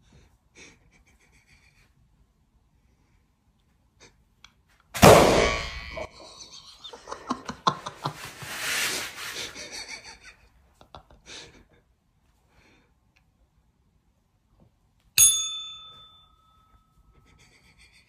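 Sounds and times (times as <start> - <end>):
foam noodle whacking a head: 5.0 - 5.7.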